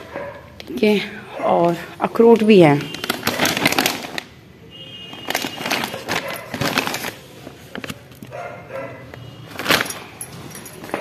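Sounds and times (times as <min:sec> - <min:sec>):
plastic snack packet crinkling: 0:02.4 - 0:04.4, 0:05.0 - 0:08.3.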